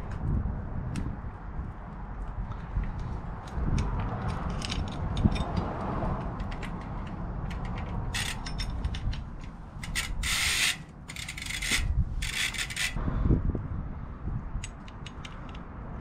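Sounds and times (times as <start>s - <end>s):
bicycle chain links clicking: 9.8s - 13.0s.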